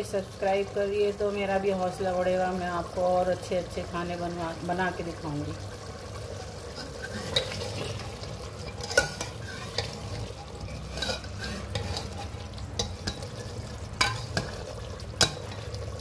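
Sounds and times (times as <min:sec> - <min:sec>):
stew sizzling: 0:00.0 - 0:16.0
metal ladle clinking against pot: 0:08.7 - 0:15.7.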